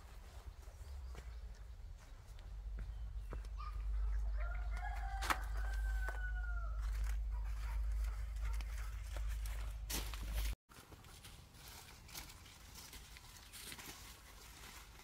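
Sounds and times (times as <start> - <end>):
rooster crowing: 4.4 - 7.2.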